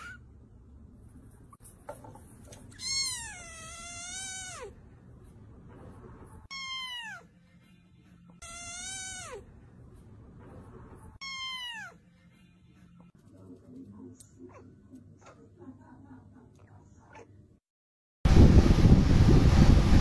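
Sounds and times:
cat meowing: 0:02.7 - 0:04.8, 0:06.5 - 0:07.3, 0:08.4 - 0:09.5, 0:11.2 - 0:12.0.

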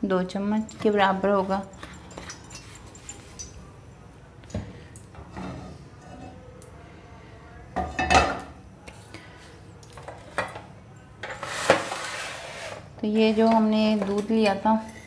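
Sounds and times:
dishes and utensils clattering: 0:00.7 - 0:03.6, 0:07.8 - 0:08.6, 0:10.0 - 0:15.0.

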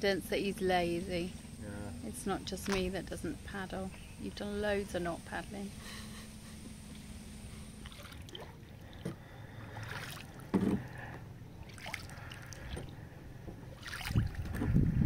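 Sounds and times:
paddle splashing in water: 0:07.8 - 0:11.0, 0:11.6 - 0:12.9, 0:13.7 - 0:14.7
paddle knock: 0:10.0 - 0:11.2.

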